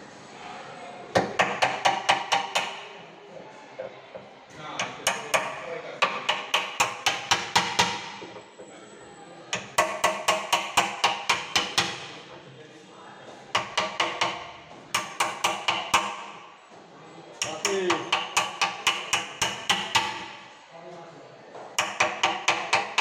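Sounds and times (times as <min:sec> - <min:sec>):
hammer tapping chisel into wood: 0:01.2 - 0:02.9, 0:04.1 - 0:08.5, 0:09.5 - 0:12.2, 0:13.5 - 0:16.5, 0:17.4 - 0:20.5, 0:21.7 - 0:23.0.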